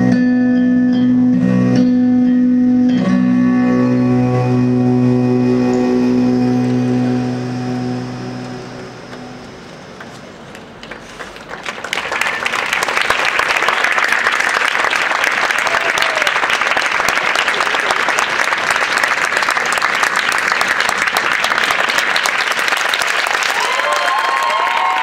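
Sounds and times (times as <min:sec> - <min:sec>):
audience applauding: 0:10.0 - 0:25.0.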